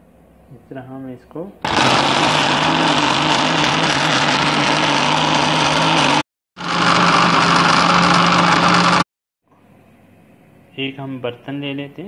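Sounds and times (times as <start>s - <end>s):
blender motor whining: 1.6s - 9.1s.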